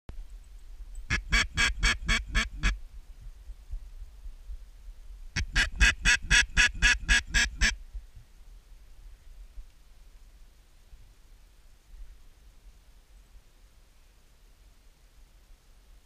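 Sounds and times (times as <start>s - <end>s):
duck call quacking: 1.1s - 2.8s, 5.4s - 7.8s.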